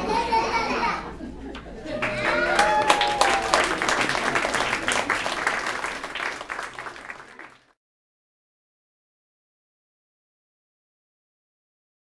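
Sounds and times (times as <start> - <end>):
audience applause: 1.8 - 7.8.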